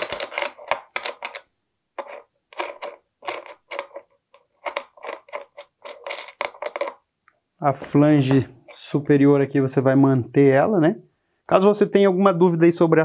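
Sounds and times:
metal scrapes and clicks: 0.0 - 7.0.

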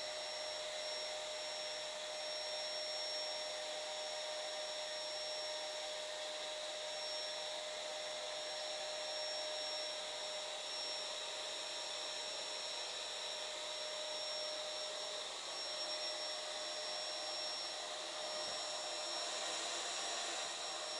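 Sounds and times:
faint high whine: 0.0 - 20.9.

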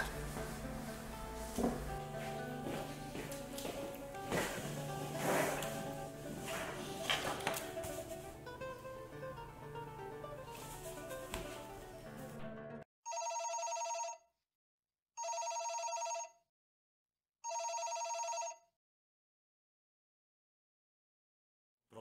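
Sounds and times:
background music: 0.0 - 12.9
telephone ringing: 13.1 - 14.3, 15.2 - 16.4, 17.4 - 18.7.

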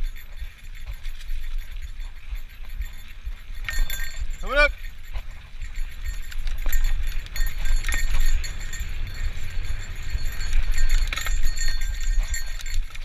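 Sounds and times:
bike clicks and rattles: 0.0 - 13.0
wind rumbling on microphone: 0.0 - 13.0.

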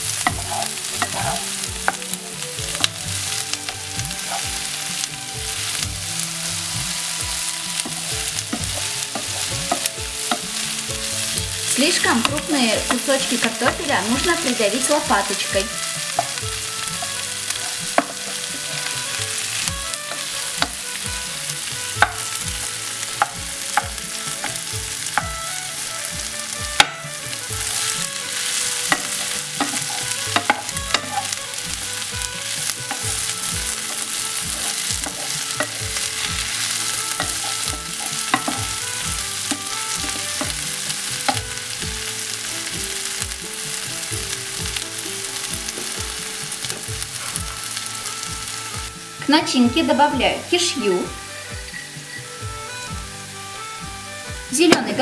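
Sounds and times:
potatoes sizzling in frying pan: 0.0 - 55.0
spatula knocking against pan: 21.6 - 25.4, 26.8 - 41.5.

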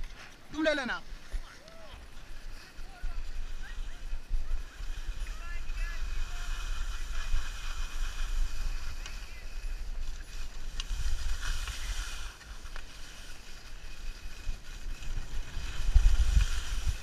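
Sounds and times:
skis sliding on snow: 0.0 - 17.0
wind buffeting microphone: 14.4 - 17.0.

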